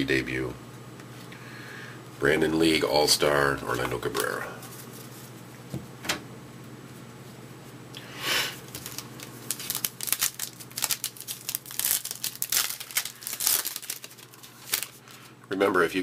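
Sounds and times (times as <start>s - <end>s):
wrapper tearing open: 8.6s - 15.2s
wrapper crinkling: 8.6s - 15.3s.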